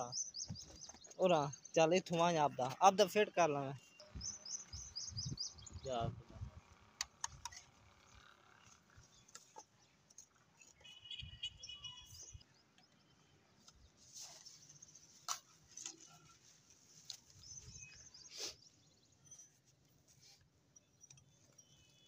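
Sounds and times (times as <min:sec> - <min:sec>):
bird chirping: 0:00.0 - 0:02.9, 0:03.8 - 0:06.0, 0:08.6 - 0:13.9, 0:17.3 - 0:19.6.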